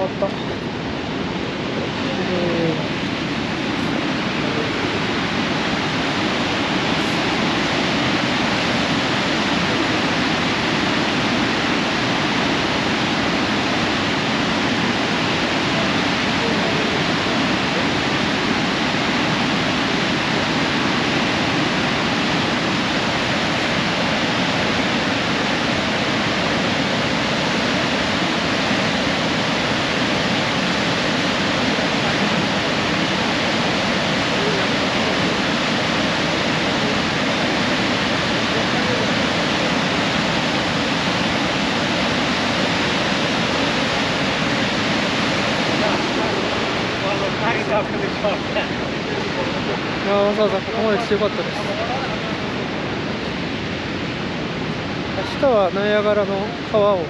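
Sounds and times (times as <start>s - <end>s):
loud rush of waterfall: 0.0s - 57.0s.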